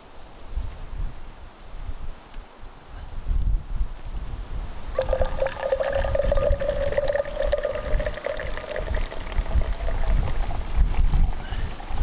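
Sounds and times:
wind rumbling on microphone: 0.4 - 12.0
coffee pouring into metal tumbler: 5.0 - 12.0.

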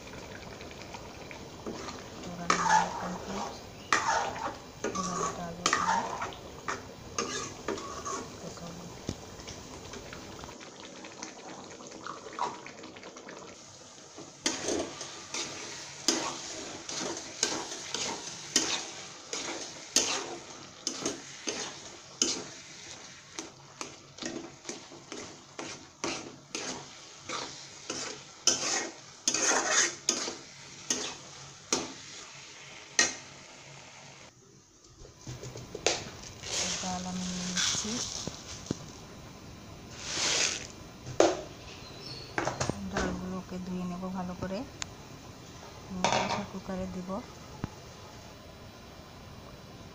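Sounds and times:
food sizzling in oil: 0.0 - 34.4, 35.4 - 49.9
metal spatula scraping pan: 1.6 - 8.4, 14.4 - 31.2.

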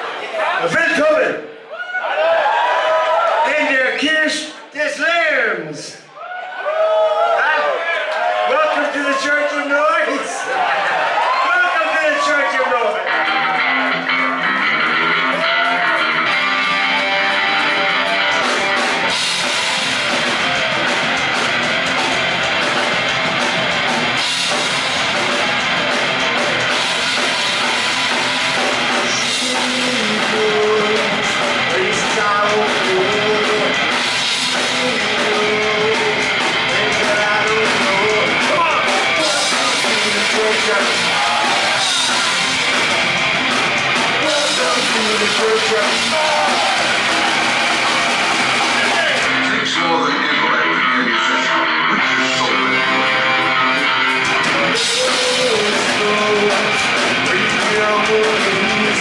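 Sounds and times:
rock band playing live: 8.1 - 59.0
man singing: 29.1 - 42.3, 44.2 - 46.9, 49.5 - 53.4, 54.6 - 59.0.

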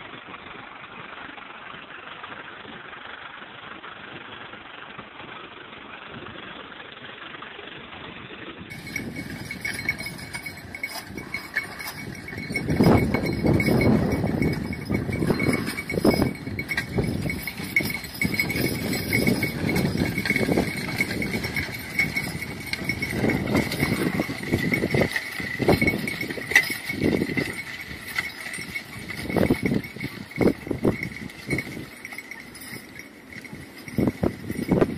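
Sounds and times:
horse hooves on soil: 8.7 - 34.9
metal harness clinking: 8.7 - 34.9
plow through soil: 8.7 - 34.9.

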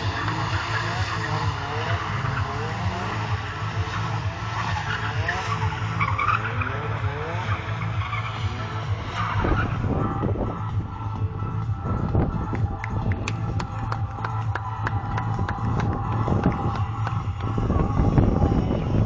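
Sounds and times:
tyres squealing: 0.0 - 10.2
car engine revving: 0.0 - 19.0.

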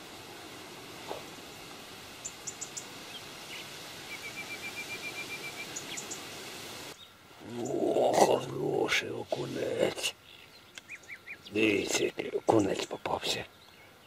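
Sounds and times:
outdoor hiss: 0.0 - 14.0
bird trill: 2.2 - 6.2, 10.2 - 11.6.

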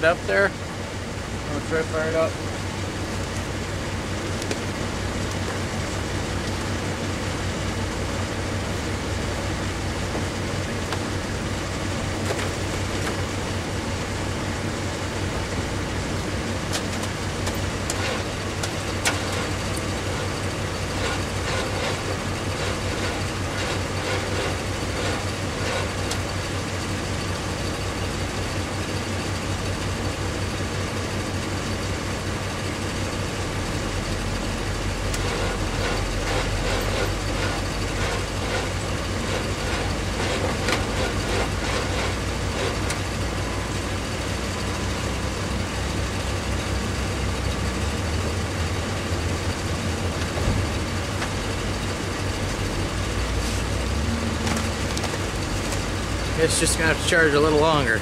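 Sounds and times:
vehicle engine idling: 0.0 - 58.0
faint ticking and rattling: 16.6 - 28.1, 34.0 - 43.4.

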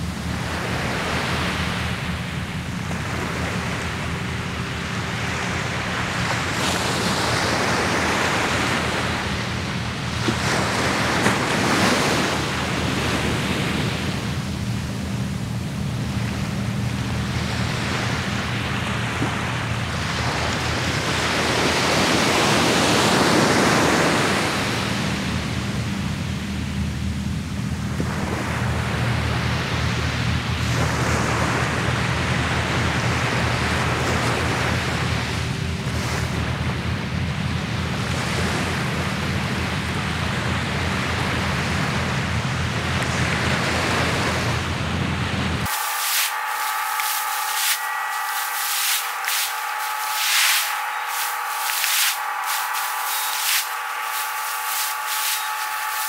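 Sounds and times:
steady low rumble: 0.0 - 22.5
ocean surf breaking: 0.0 - 26.4, 38.0 - 56.0.

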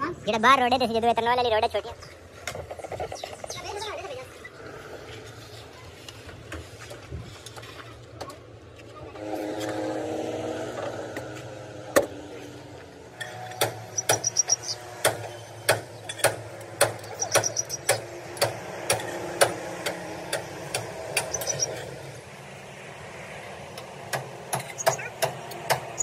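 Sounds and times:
rapid high ticking: 21.2 - 21.7.

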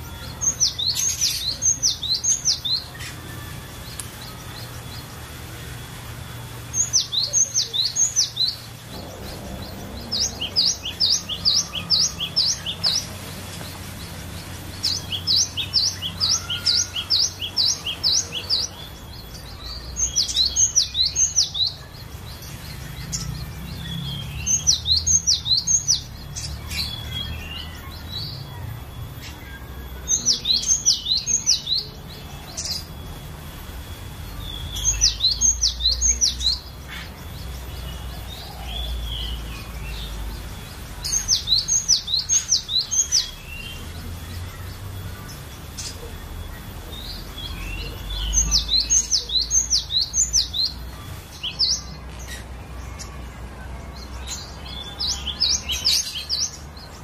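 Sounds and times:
bird singing high notes: 0.0 - 37.9.

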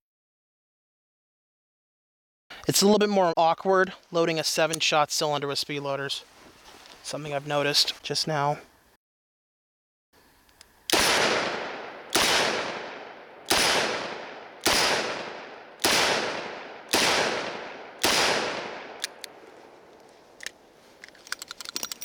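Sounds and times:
revolver shots echoing: 10.9 - 19.0.

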